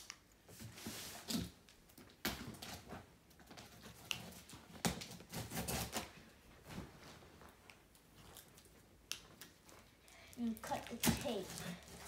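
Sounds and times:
blade cutting cardboard and tape: 0:03.8 - 0:06.2.

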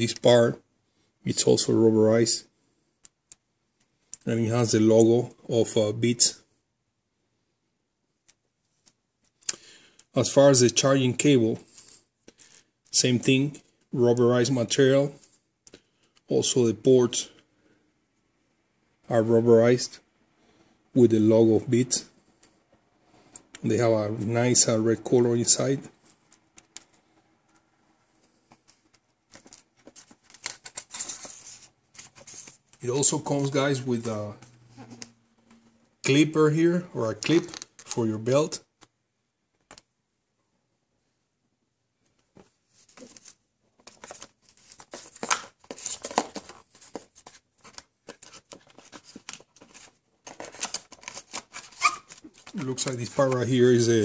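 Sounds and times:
cardboard rustling and scraping: 0:28.2 - 0:35.1, 0:42.4 - 0:53.8.

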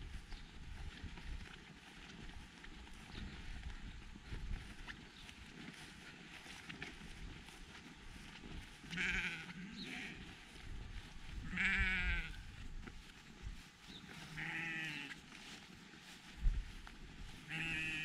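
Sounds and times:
sheep bleating: 0:08.8 - 0:10.5, 0:11.4 - 0:12.5, 0:14.1 - 0:15.2, 0:17.4 - 0:18.0.

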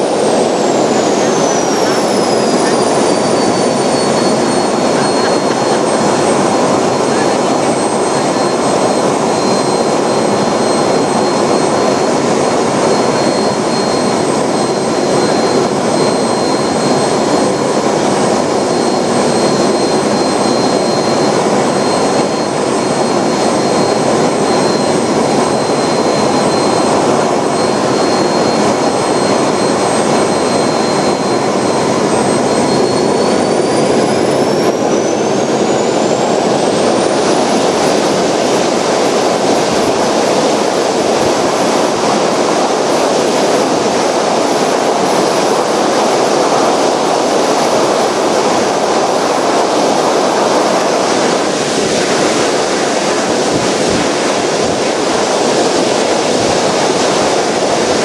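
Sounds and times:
jet turbine roar and whine: 0:00.0 - 0:58.0.

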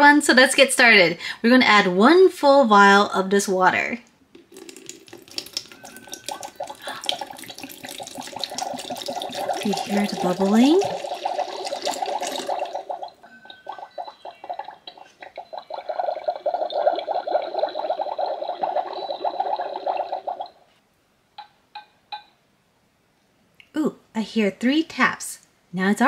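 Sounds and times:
toy cauldron bubbling: 0:04.4 - 0:20.6.

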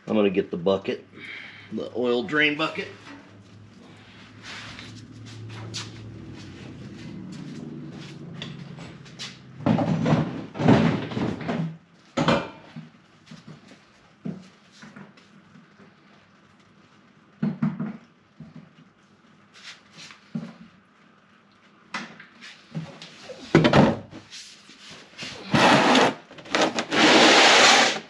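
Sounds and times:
low steady hum: 0:00.0 - 0:11.6
workshop gear clattering: 0:08.5 - 0:12.8.

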